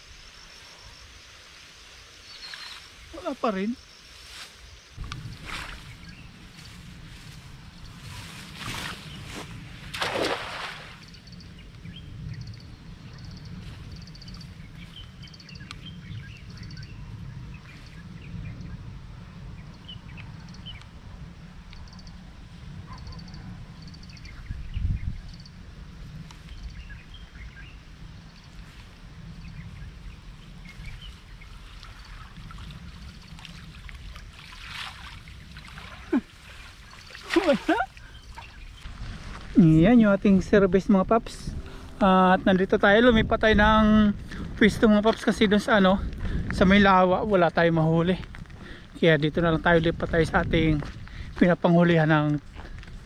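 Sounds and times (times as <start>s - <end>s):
wind rumble on microphone: 0.0s - 53.0s
bird calls: 2.1s - 6.4s, 29.4s - 33.6s, 34.2s - 38.9s.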